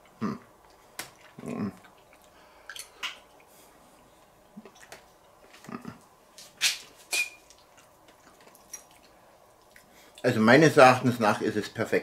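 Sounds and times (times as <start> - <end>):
chewing: 0.7 - 3.6, 4.5 - 6.0, 7.4 - 10.2.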